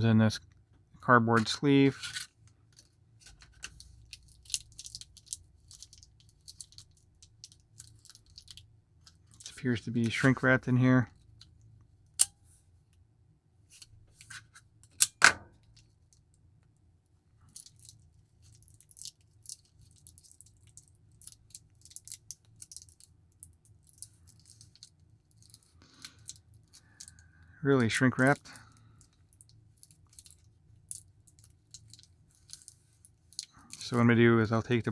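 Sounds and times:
faint plastic crinkling: 0:00.4 - 0:11.9, 0:15.6 - 0:34.9
plastic wrap being peeled: 0:02.0 - 0:10.2, 0:17.5 - 0:27.1.

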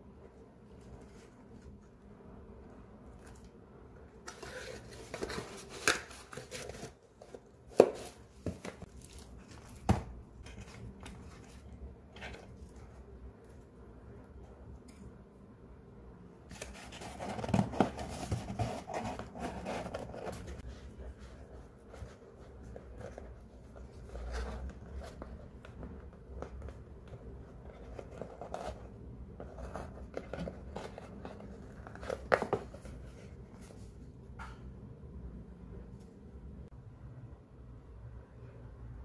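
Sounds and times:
cardboard box rustling and scraping: 0:16.5 - 0:25.3.

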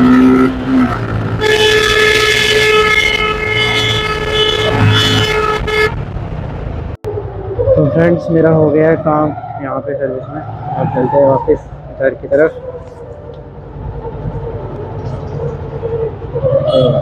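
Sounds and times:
vehicle horn long note: 0:01.4 - 0:06.0.

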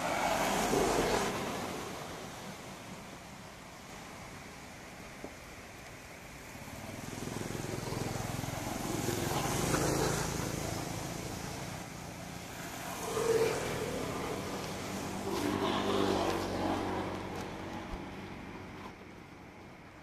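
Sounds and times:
vehicle engine running: 0:06.5 - 0:20.0.

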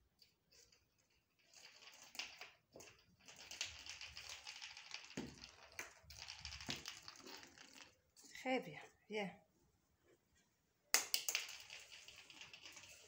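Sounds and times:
ball rolling on stone floor: 0:00.2 - 0:08.4, 0:10.9 - 0:13.0.

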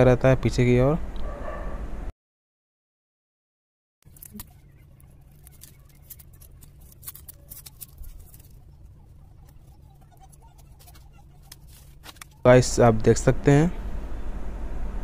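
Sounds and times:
utility knife scratching and clicking: 0:04.1 - 0:12.4
low steady hum: 0:04.1 - 0:15.0.

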